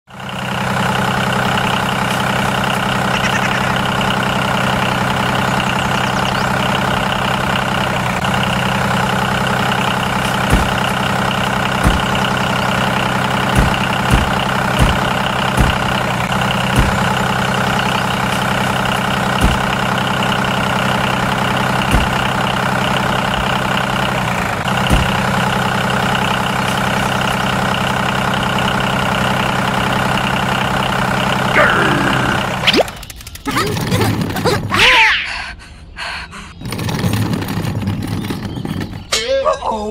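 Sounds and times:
tractor engine idling: 0:00.0 - 0:34.8, 0:36.6 - 0:39.1
sharp knocks: 0:10.4 - 0:11.0, 0:11.8 - 0:12.3, 0:13.5 - 0:16.0, 0:16.7 - 0:17.2, 0:19.4 - 0:19.8, 0:21.9 - 0:22.4, 0:24.8 - 0:25.4.

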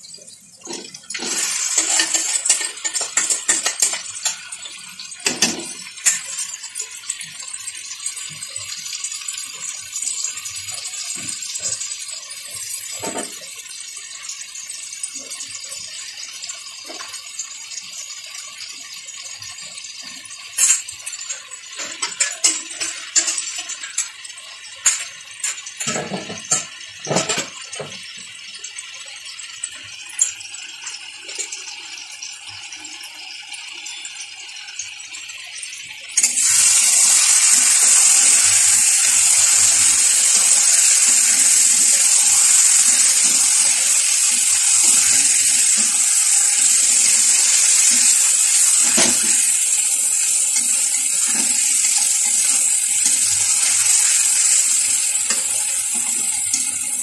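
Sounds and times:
chicken sizzling in hot oil: 0:00.0 - 0:57.0
metal spoon scraping a pan: 0:00.6 - 0:04.5, 0:36.2 - 0:57.0.

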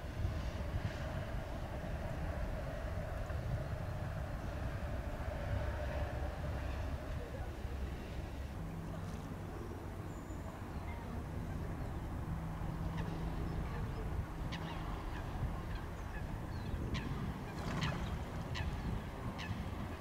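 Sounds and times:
waterbirds calling: 0:06.6 - 0:20.0.

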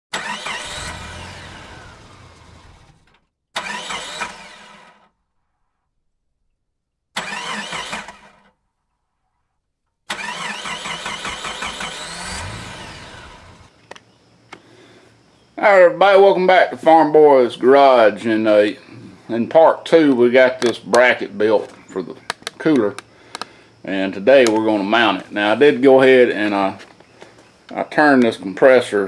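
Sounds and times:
engine revving in bursts: 0:00.1 - 0:05.1, 0:10.1 - 0:13.7.

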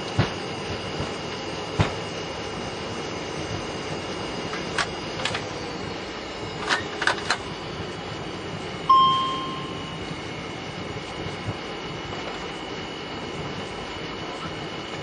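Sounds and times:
aircraft cockpit rumble: 0:00.0 - 0:15.0
cockpit chime: 0:08.9 - 0:10.1.

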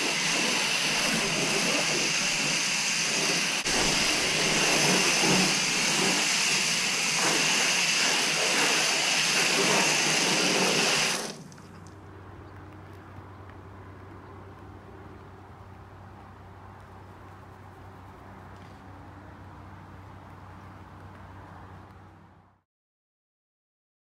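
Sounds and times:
foam gun spraying hiss: 0:00.0 - 0:11.6
water splashing on car: 0:00.0 - 0:12.0.

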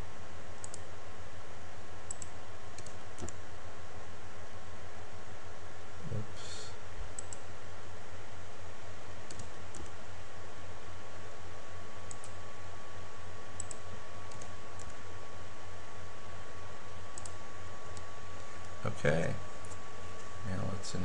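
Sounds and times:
steady low hum: 0:00.0 - 0:21.0
computer mouse and key clicks: 0:00.6 - 0:00.9, 0:02.1 - 0:03.4, 0:07.2 - 0:07.4, 0:09.2 - 0:10.0, 0:12.1 - 0:12.4, 0:13.6 - 0:15.0, 0:17.2 - 0:18.8.

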